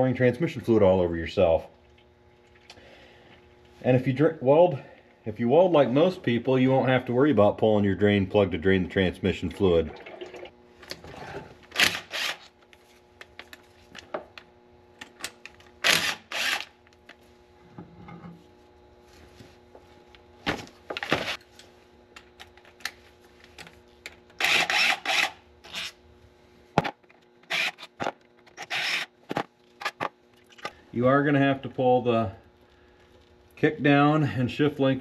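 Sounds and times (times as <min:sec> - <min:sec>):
faint steady hum: 0:00.0 - 0:35.0
cordless driver spinning bolts: 0:15.8 - 0:16.7, 0:24.4 - 0:26.0, 0:27.5 - 0:29.2.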